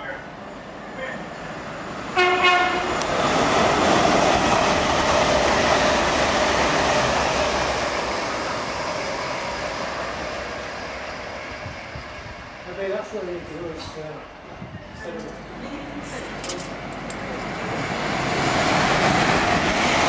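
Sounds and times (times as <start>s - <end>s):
train rushing past: 0.0s - 20.0s
train horn blast: 2.2s - 3.0s.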